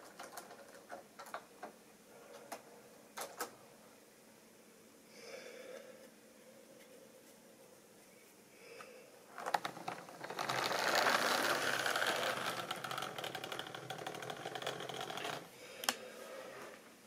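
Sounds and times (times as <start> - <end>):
model train motor whirring: 9.5 - 15.5
wheels clicking over rail joints: 9.5 - 15.5.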